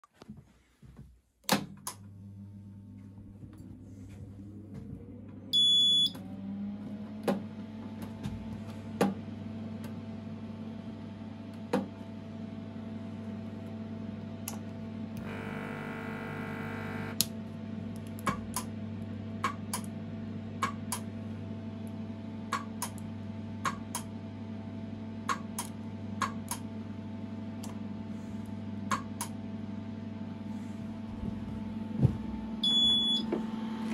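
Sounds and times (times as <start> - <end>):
loud high beep: 5.6 - 6.1, 32.6 - 33.2
mains hum: 8.1 - 18.0
pump buzzing: 15.2 - 17.2
rising electronic whine: 15.2 - 17.2.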